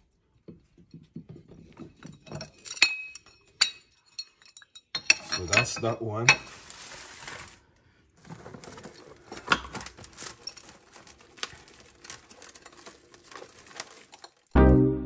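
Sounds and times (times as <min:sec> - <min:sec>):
rustling: 0:05.2 - 0:14.6.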